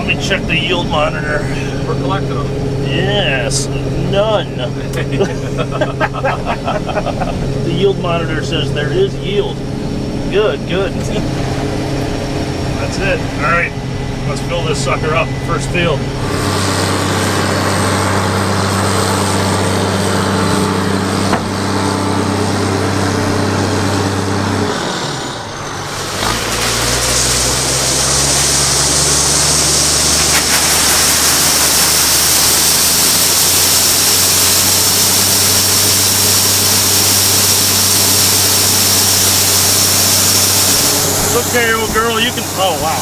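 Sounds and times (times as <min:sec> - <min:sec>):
combine engine running: 0:00.0 - 0:43.0
grain pouring hiss: 0:25.9 - 0:43.0.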